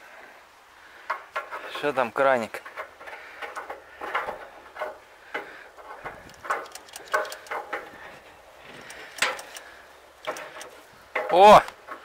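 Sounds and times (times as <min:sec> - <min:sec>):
light metallic clicks and taps: 0:06.1 - 0:07.9, 0:08.7 - 0:12.0.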